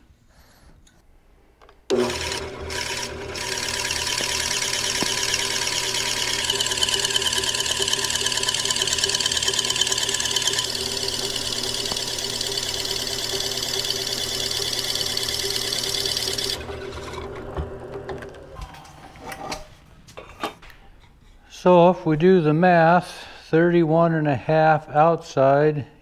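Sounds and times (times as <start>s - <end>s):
drill press running: 1.9s - 18.6s.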